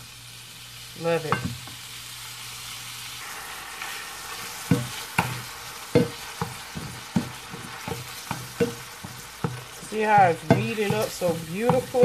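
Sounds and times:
meat sizzling in a frying pan: 0:00.0 - 0:12.0
meat chopper knocking on pan: 0:04.6 - 0:12.0.

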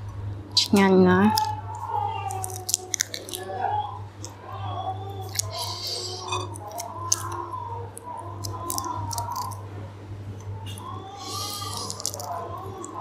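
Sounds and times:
prawn shells cracking: 0:00.6 - 0:03.6, 0:05.1 - 0:09.6, 0:10.7 - 0:13.0.

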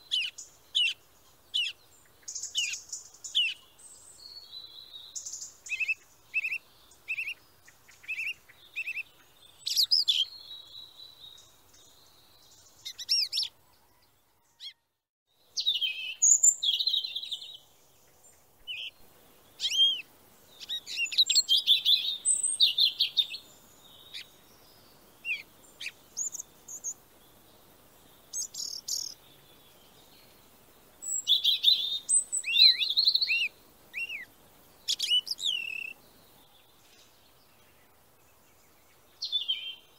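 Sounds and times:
high bird chirps: 0:34.9 - 0:36.0.

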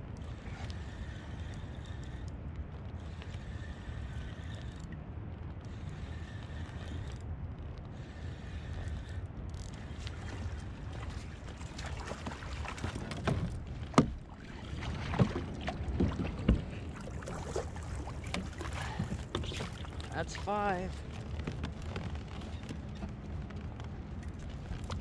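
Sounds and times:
wind rumble on microphone: 0:00.0 - 0:25.0
water against kayak hull: 0:00.1 - 0:05.0, 0:05.6 - 0:25.0
sharp knocks and splashes: 0:10.2 - 0:20.8.

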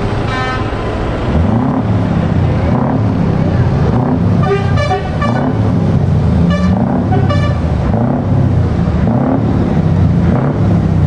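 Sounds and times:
truck engine rumbling: 0:00.0 - 0:11.0
horn toots: 0:00.3 - 0:00.8, 0:04.1 - 0:05.8, 0:06.4 - 0:08.0.

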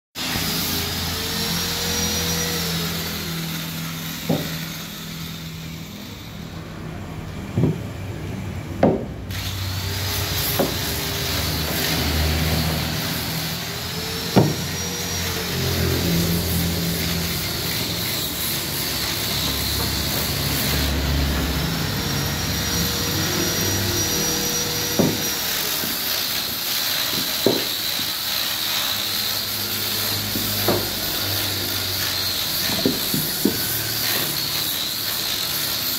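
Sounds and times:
woodworking machine whine: 0:00.2 - 0:35.9
workshop hum: 0:00.2 - 0:35.9
sharp wooden knocks: 0:04.3 - 0:04.6, 0:07.6 - 0:07.9, 0:08.8 - 0:09.2, 0:10.5 - 0:10.9, 0:14.3 - 0:14.8, 0:25.0 - 0:26.0, 0:27.1 - 0:27.8, 0:30.4 - 0:31.0, 0:32.6 - 0:33.7.

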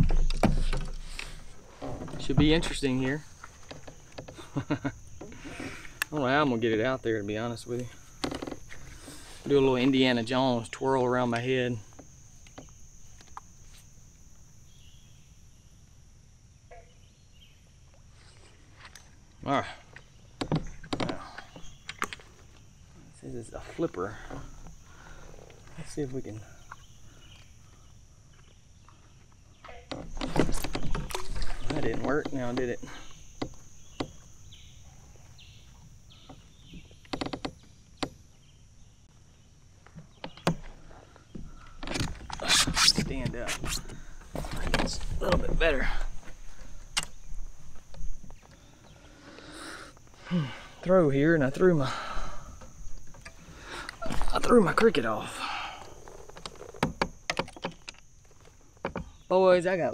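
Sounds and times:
fishing gear clicking and knocking: 0:00.0 - 0:06.2, 0:29.9 - 0:34.2, 0:36.2 - 0:38.1, 0:55.9 - 0:59.2
high-pitched insect drone: 0:00.0 - 0:17.6, 0:18.2 - 0:39.0, 0:40.3 - 0:59.9
steady high-pitched hiss: 0:00.0 - 0:59.9.

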